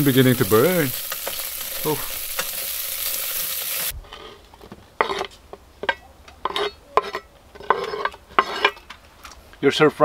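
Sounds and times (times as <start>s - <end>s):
meat sizzling in a pot: 0.0s - 3.9s.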